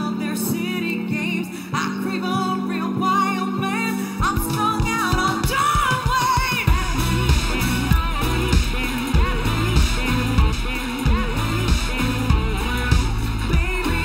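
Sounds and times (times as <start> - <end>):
person singing pop song: 0.0 - 14.0
heavy pounding beat: 4.2 - 14.0.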